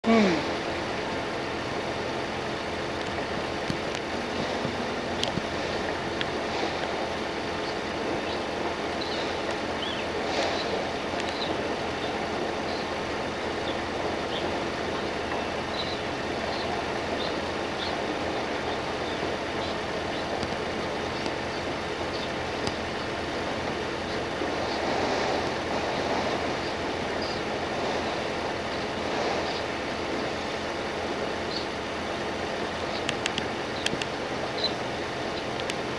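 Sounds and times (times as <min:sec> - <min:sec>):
engines and machinery din: 0:00.0 - 0:35.9
faint high chirps and clicks: 0:32.9 - 0:34.8.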